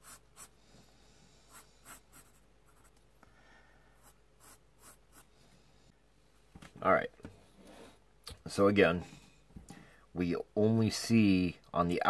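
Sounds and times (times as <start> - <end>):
pencil scratching on paper: 0.0 - 0.6, 1.5 - 2.9, 4.0 - 5.3.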